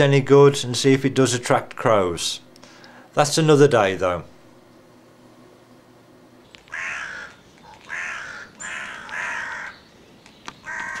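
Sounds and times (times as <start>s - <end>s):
crows cawing: 6.7s - 9.9s, 10.6s - 11.0s.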